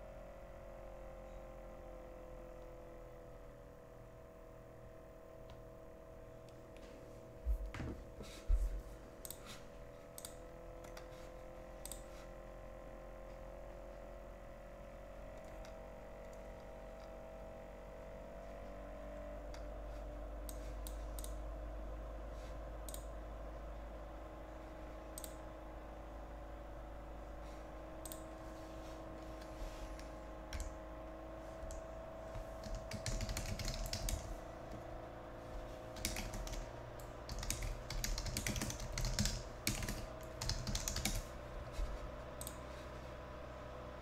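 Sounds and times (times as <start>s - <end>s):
faint electrical hum: 0.0s - 44.0s
keyboard typing: 30.5s - 30.8s, 31.6s - 34.8s, 35.9s - 41.8s.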